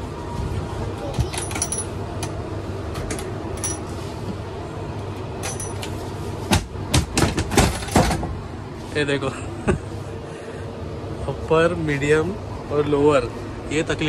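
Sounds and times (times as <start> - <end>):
steady background hum: 0.0 - 14.0
metal hooks and chains clinking: 1.3 - 2.0, 3.6 - 3.9, 5.4 - 5.9.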